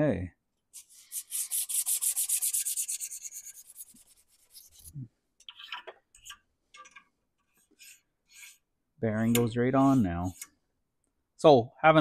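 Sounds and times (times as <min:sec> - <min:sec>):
emery paper rasping on steel shaft: 0:07.5 - 0:08.7, 0:09.8 - 0:10.6.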